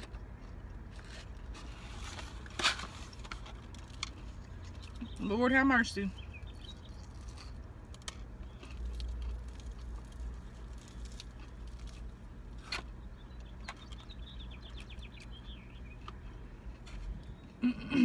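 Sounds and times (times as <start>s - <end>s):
food containers clicking and rustling: 0.0s - 5.1s
low steady hum: 0.0s - 18.0s.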